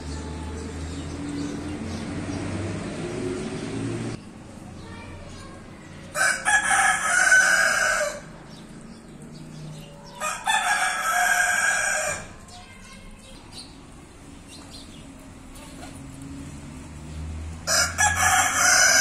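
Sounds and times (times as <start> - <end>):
rooster crowing: 6.2 - 8.3, 10.2 - 12.3, 17.7 - 19.0.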